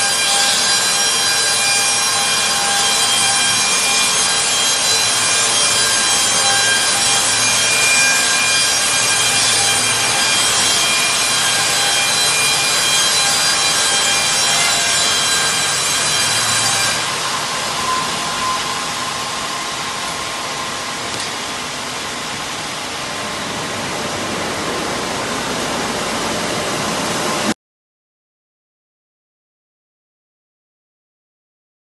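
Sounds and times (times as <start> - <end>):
band sawmill sawing a log: 0.0 - 21.0.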